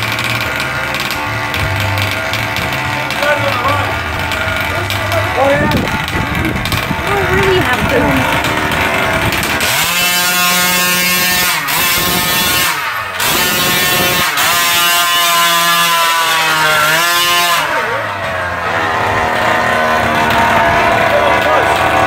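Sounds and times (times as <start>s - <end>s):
small engine revving buzzily: 0.0s - 22.0s.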